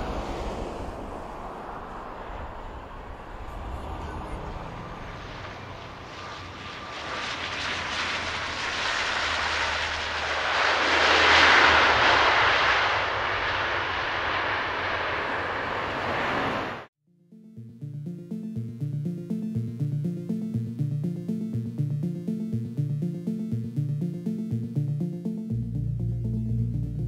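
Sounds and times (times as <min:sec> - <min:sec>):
airplane engine passing: 0:00.0 - 0:16.9.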